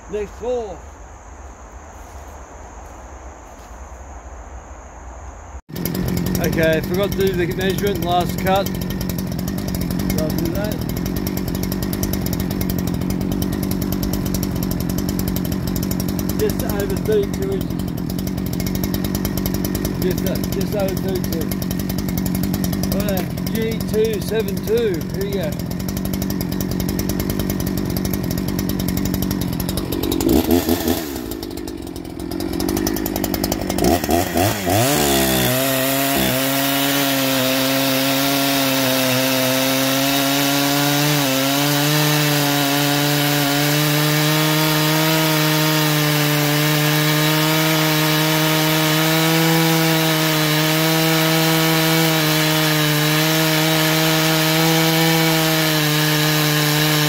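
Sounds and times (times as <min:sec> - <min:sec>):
chainsaw cutting log: 0:05.7 - 0:57.0.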